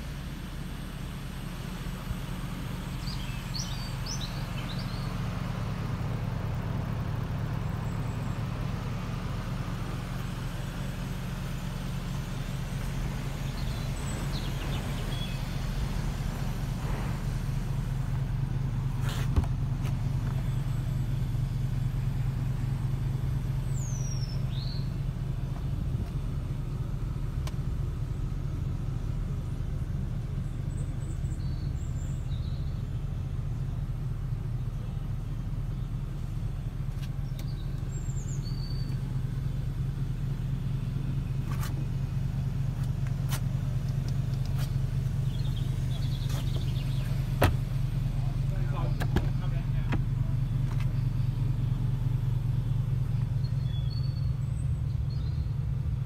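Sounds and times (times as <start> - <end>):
car engine idling: 0.0 - 56.0
bird chirps: 3.0 - 5.2, 13.4 - 15.6, 23.6 - 25.1, 37.2 - 39.5, 45.0 - 47.4, 52.5 - 55.6.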